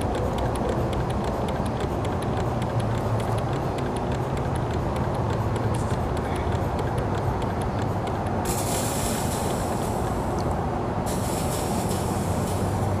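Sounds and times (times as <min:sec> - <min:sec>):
engine mechanism ticking: 0:00.0 - 0:13.0
high hiss: 0:08.4 - 0:10.3.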